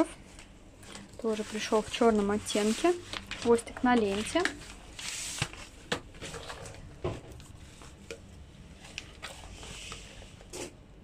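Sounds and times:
packaging rustling: 0:00.4 - 0:10.1.

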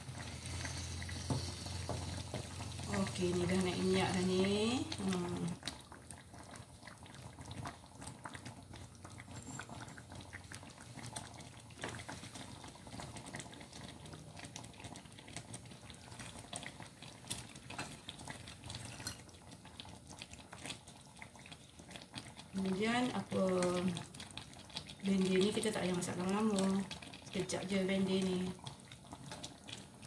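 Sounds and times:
curry bubbling in a pan: 0:00.0 - 0:30.0.

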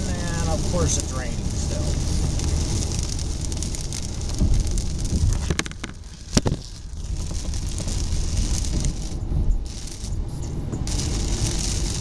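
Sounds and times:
heavy rain on a car: 0:00.0 - 0:12.0
low road rumble: 0:00.0 - 0:12.0
tyres on wet road: 0:00.0 - 0:12.0.

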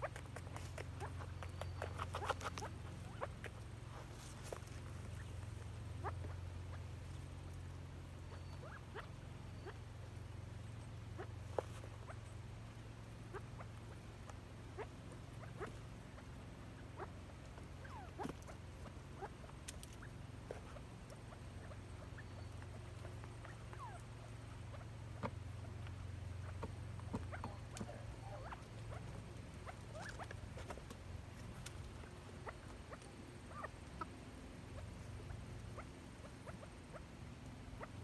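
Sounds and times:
birds peeping and chirping: 0:00.0 - 0:38.0
steady low hum: 0:00.0 - 0:38.0
light ticks: 0:00.1 - 0:02.7, 0:19.4 - 0:21.2.

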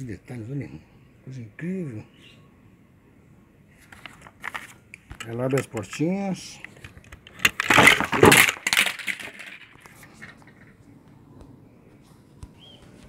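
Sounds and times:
handling noise on microphone: 0:03.7 - 0:13.0.

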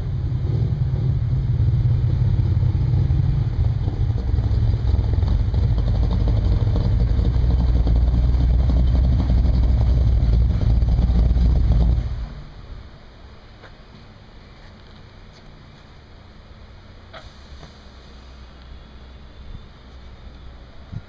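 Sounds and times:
deep car engine rumble: 0:00.0 - 0:21.0.

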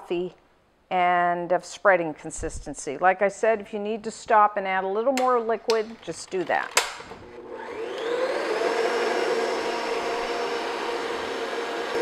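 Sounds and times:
stand mixer motor running: 0:07.3 - 0:12.0.

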